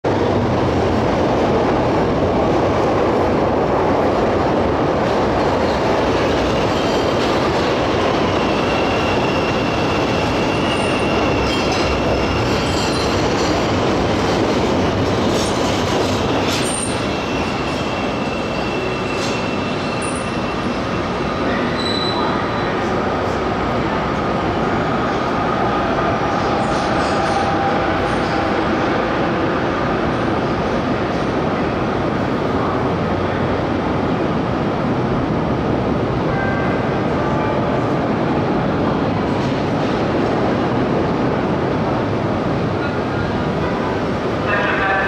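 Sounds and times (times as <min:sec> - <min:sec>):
train wheels rumbling on track: 0:00.1 - 0:45.0
high wheel squeals: 0:08.2 - 0:13.2, 0:16.6 - 0:21.0, 0:21.7 - 0:22.7.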